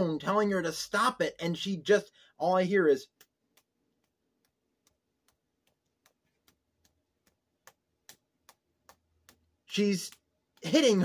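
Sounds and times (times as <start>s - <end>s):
finger taps: 3.1s - 11.0s.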